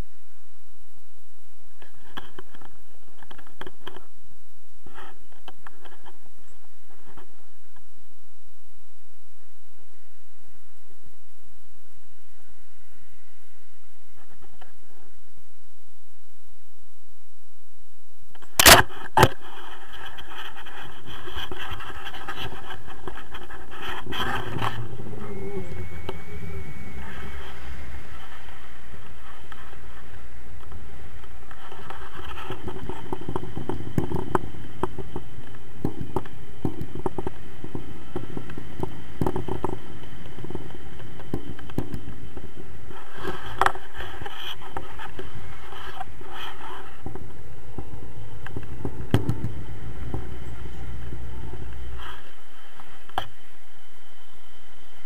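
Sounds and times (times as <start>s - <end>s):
wind rumble on microphone: 0.0s - 55.0s
clicks and scrapes: 18.4s - 28.6s.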